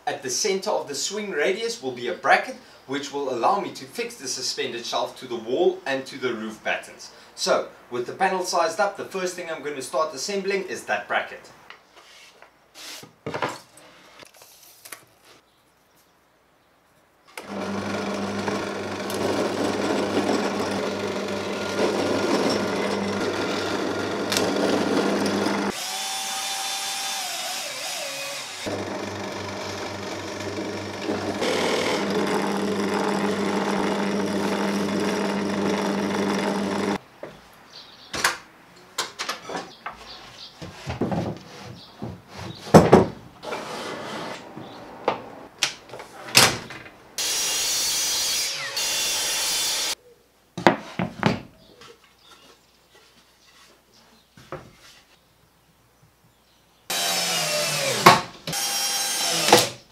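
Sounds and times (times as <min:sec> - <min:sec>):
drill press motor humming: 0:17.4 - 0:26.1, 0:28.6 - 0:37.0.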